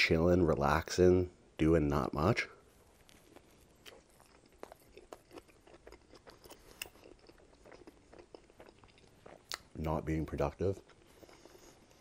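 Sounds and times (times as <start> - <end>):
person chewing pizza: 2.7 - 12.0.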